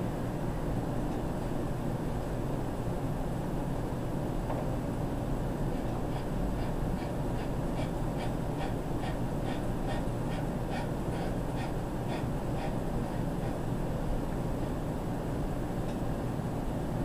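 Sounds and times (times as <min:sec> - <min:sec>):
low room hum: 0:00.0 - 0:17.0
man breathing hard: 0:05.8 - 0:13.7.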